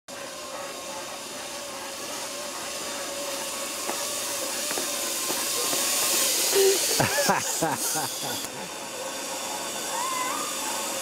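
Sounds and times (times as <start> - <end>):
zip-line pulleys hissing on cable: 0.1 - 11.0.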